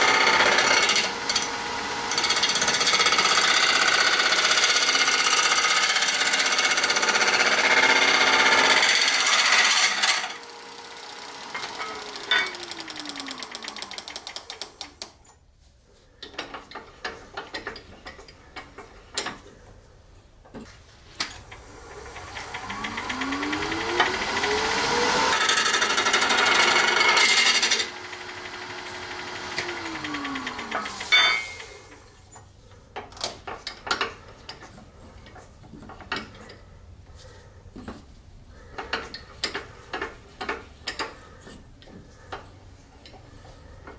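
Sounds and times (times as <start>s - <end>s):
lathe motor whine: 0.0s - 4.7s, 7.6s - 15.0s, 21.3s - 32.3s
lathe gouge scraping wood: 21.4s - 32.0s.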